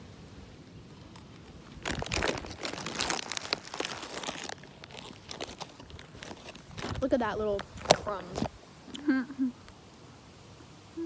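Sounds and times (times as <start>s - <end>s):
plastic bag crinkling: 1.1s - 8.5s.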